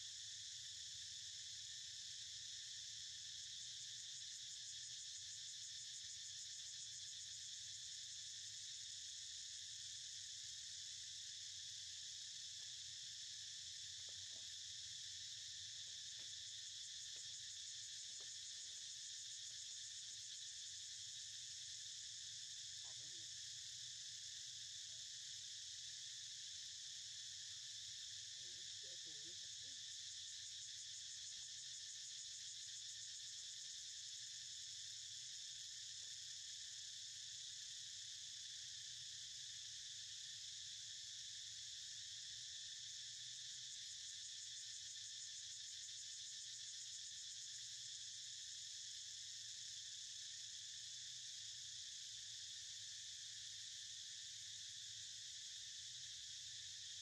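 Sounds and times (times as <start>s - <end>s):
high-pitched insect chorus: 0.0s - 57.0s.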